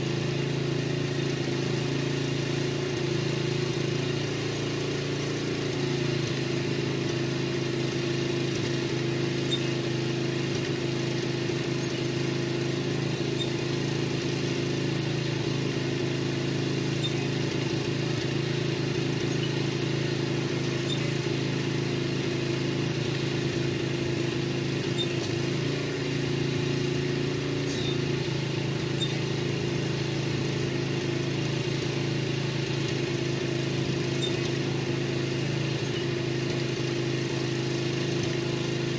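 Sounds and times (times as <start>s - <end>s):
small motor humming: 0.0s - 38.9s.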